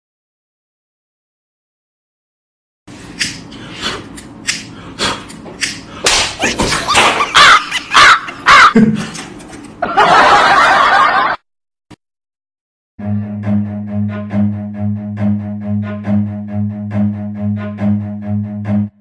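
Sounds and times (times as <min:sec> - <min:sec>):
sharp slap-like hits: 0:05.5 - 0:07.4.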